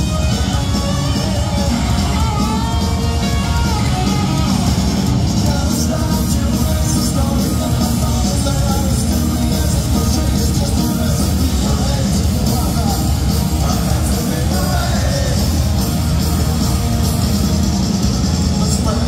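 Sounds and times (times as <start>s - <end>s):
man singing: 0.0s - 2.8s, 5.4s - 15.8s, 18.4s - 19.0s
punk rock band playing: 0.0s - 19.0s.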